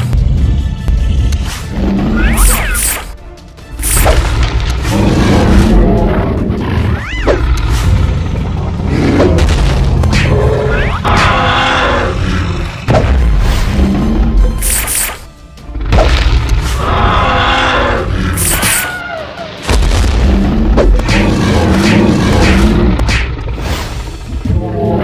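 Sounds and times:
dramatic music: 0.0 - 25.0
swooping effects: 2.0 - 3.1.

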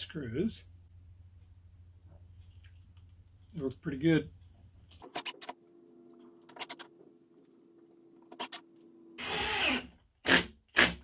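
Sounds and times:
drill clicks: 9.2 - 10.9
drill driver motor running: 9.2 - 10.9.

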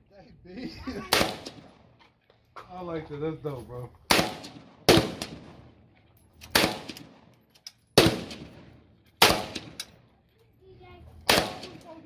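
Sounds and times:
rifle shots with ringing echo: 1.1 - 1.9, 4.0 - 10.0, 11.2 - 11.9.

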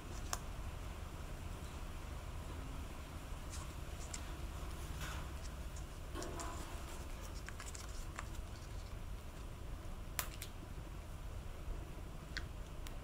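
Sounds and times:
low steady hum: 0.0 - 13.0
tape crinkling: 3.5 - 9.5.

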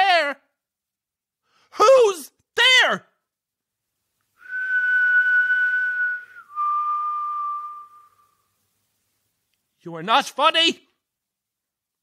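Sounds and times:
person whistling long breathy notes: 4.4 - 8.5.

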